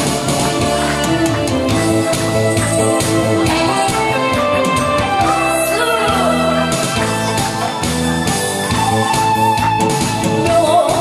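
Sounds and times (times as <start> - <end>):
upbeat music over loudspeakers: 0.0 - 11.0
woman singing into microphone: 3.4 - 7.2, 10.2 - 11.0.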